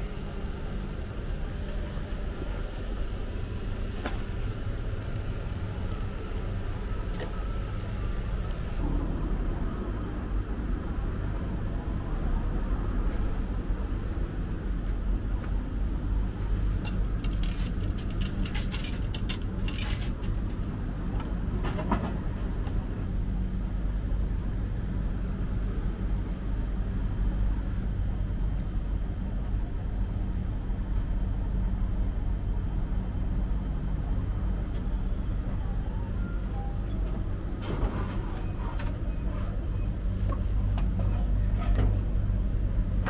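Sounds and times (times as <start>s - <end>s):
low electrical hum: 0.0s - 43.0s.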